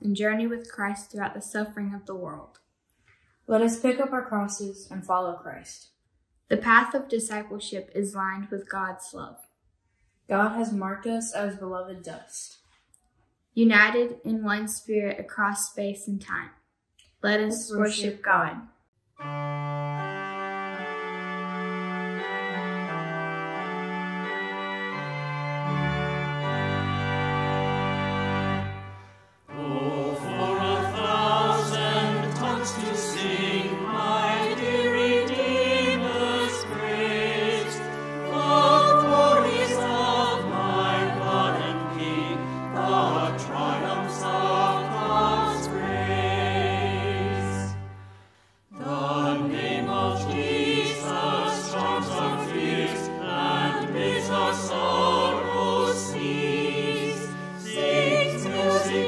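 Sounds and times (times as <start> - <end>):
organ playing sustained chords: 19.2 - 59.0
choir singing a hymn: 21.8 - 59.0.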